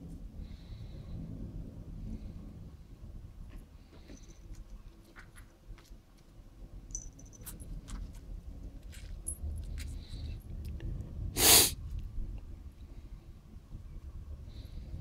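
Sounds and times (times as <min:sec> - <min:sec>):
kitten hissing: 0:11.4 - 0:11.8.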